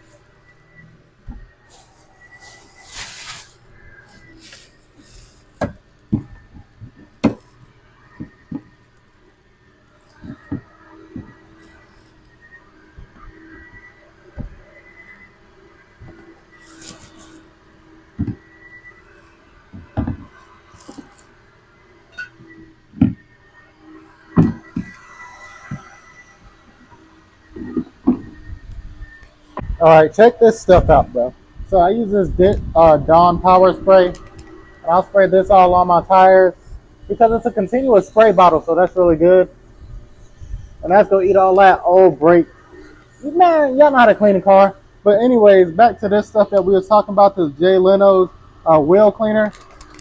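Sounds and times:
plastic bags rustling: 0:01.7 - 0:03.6
dull knocks and thumps: 0:19.7 - 0:20.3.

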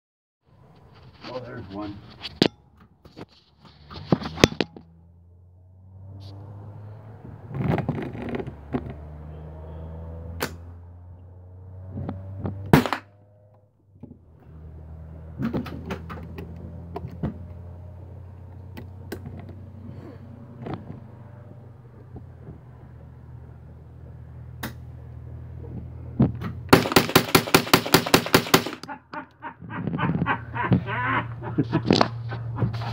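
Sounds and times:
single gunshots: 0:12.7 - 0:13.2, 0:26.7 - 0:28.8
rapid gunfire: 0:26.7 - 0:28.8.

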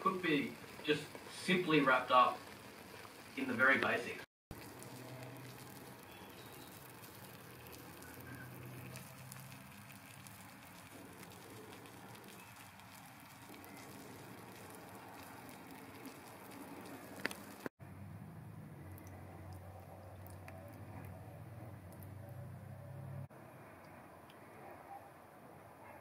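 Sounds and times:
liquid simmering with small bubbles: 0:00.0 - 0:17.7, 0:18.8 - 0:22.6.

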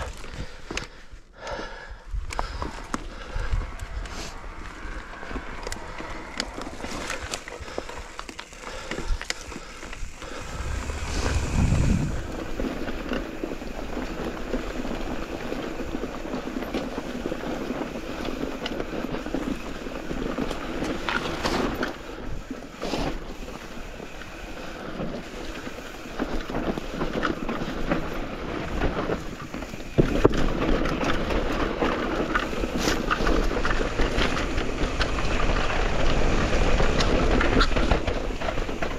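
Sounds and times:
bike rolling and rattling: 0:00.0 - 0:38.9
wind buffeting microphone: 0:02.1 - 0:08.2, 0:09.0 - 0:16.1.

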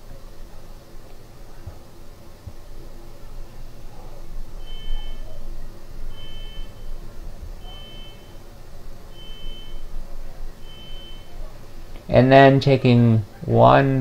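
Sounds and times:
high electronic beeps: 0:04.6 - 0:05.5, 0:06.1 - 0:07.0, 0:07.6 - 0:08.4, 0:09.1 - 0:10.0, 0:10.6 - 0:11.4.

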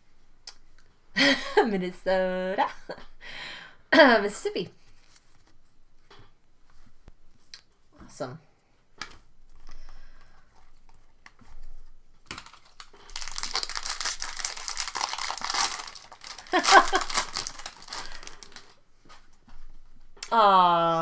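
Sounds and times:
foil wrapper crinkling: 0:12.2 - 0:18.8.

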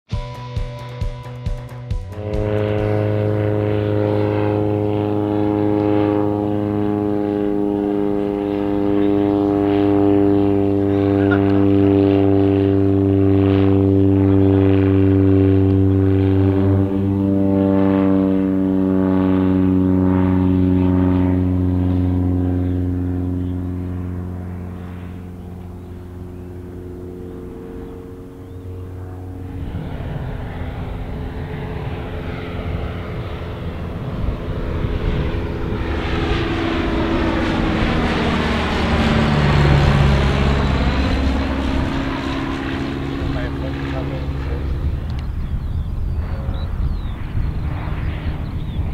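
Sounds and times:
light aircraft engine droning: 0:00.1 - 0:48.9.

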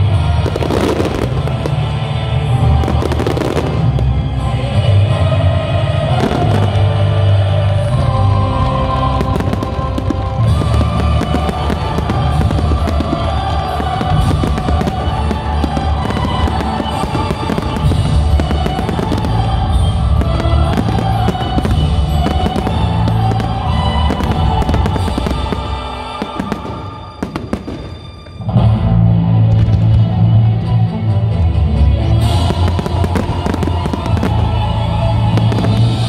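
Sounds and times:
loud show music: 0:00.0 - 0:36.0
fireworks bangs and pops: 0:02.8 - 0:04.2, 0:08.6 - 0:28.4, 0:32.2 - 0:36.0.

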